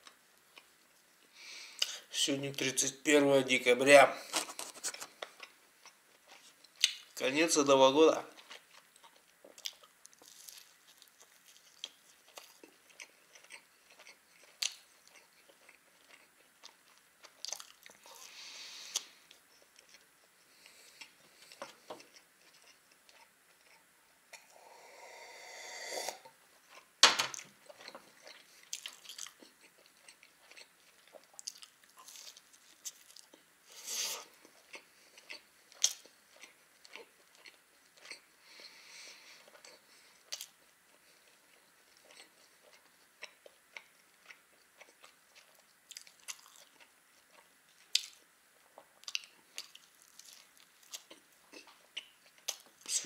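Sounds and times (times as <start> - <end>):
chewing and biting food: 8.3 - 24.4, 26.2 - 33.5, 34.2 - 52.9.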